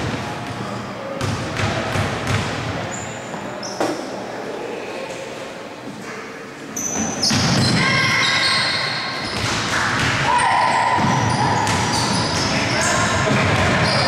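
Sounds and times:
shoe squeaks on floor: 2.9 - 4.0, 6.8 - 9.4, 11.1 - 12.9.

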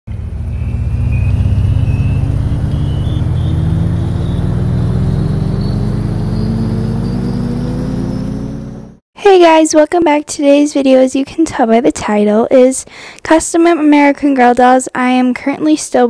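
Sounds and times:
deep synth drone rising: 0.1 - 9.0
short high synth notes: 0.3 - 7.3.

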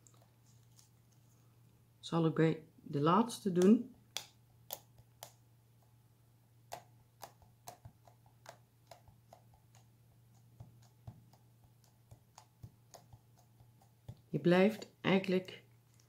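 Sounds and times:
eraser tapping on paper: 6.7 - 14.9.

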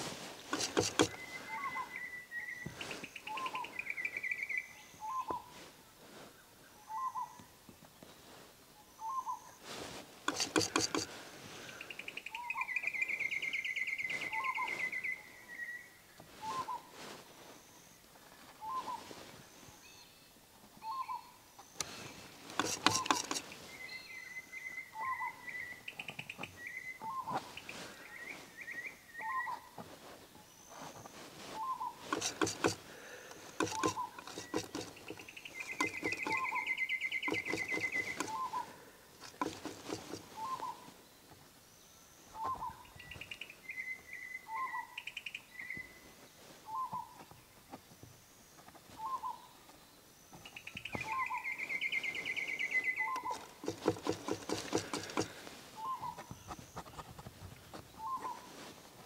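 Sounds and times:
palette knife scraping canvas: 0.4 - 1.2, 9.9 - 11.2, 22.5 - 23.6, 32.0 - 36.6, 37.2 - 40.6, 53.2 - 58.4
birds warbling trilled calls: 0.5 - 5.6, 6.7 - 7.5, 10.3 - 17.0, 20.8 - 29.8, 30.4 - 41.0, 48.9 - 57.0, 57.8 - 58.7.

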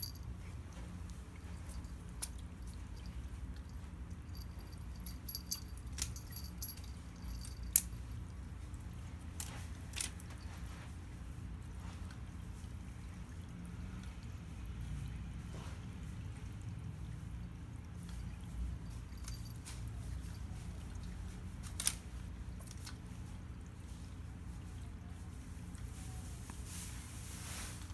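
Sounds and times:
small bell jingling: 0.0 - 0.6, 1.4 - 8.2, 18.8 - 20.7.

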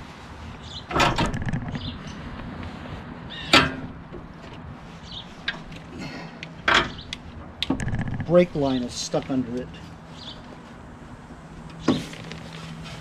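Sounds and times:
engine knocking on steel plate: 7.8 - 8.4.

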